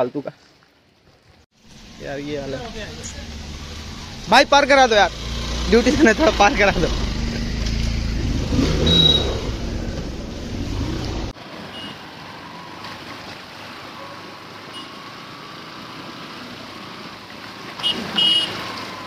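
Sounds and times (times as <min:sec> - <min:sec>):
motorbike engine running: 0:02.2 - 0:11.3.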